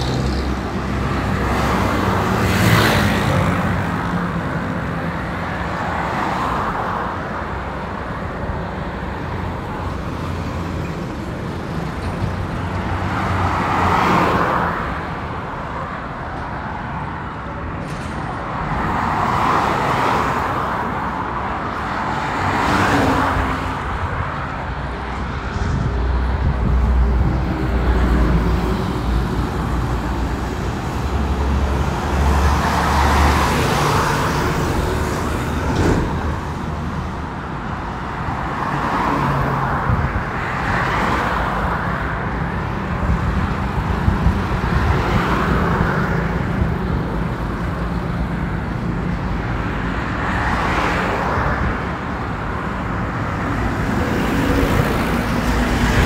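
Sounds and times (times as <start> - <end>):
cars and trucks passing: 0.0 - 56.0
road noise rumble: 0.0 - 56.0.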